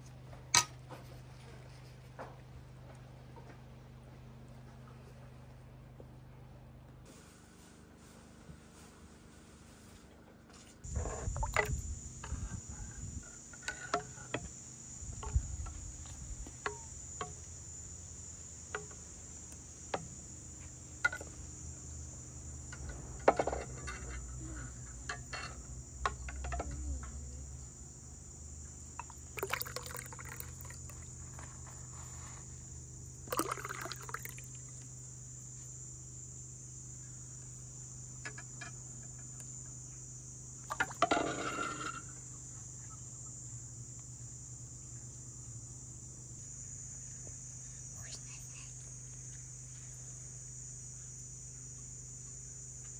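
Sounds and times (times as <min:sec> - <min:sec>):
insects chirring: 0:10.8 - 0:52.9.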